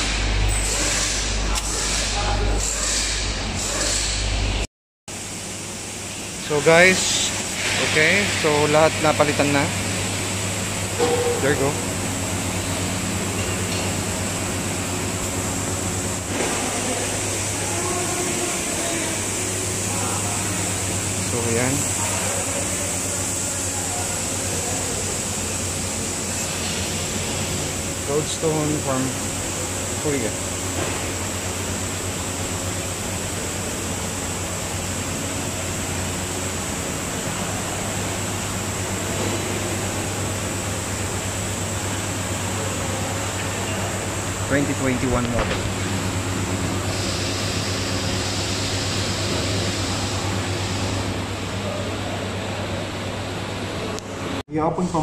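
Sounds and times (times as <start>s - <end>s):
low machinery hum: 5.2s - 55.0s
thin high whine: 10.9s - 12.0s
hiss: 46.8s - 51.0s.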